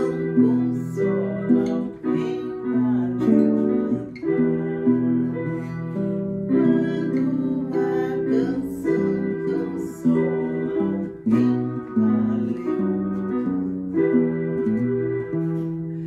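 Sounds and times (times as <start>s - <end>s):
woman singing: 0.0s - 13.8s
electronic keyboard playing: 0.0s - 16.0s.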